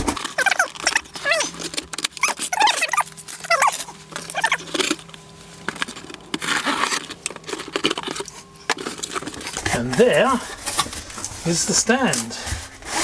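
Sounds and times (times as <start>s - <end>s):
cardboard box scraping: 12.4s - 13.0s.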